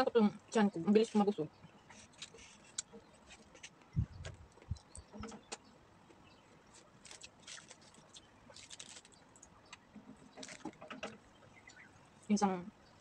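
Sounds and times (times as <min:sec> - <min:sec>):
crunching fried chicken: 0:06.7 - 0:10.9.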